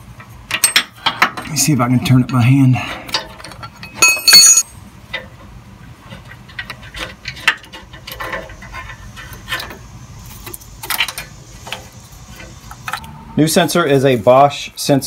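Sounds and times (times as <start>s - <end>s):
wrench clanking against metal: 3.1s - 4.7s.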